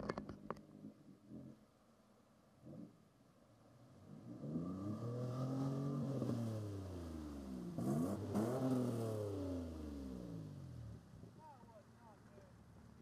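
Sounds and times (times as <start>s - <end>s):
pickup truck engine revving: 4.4s - 10.8s.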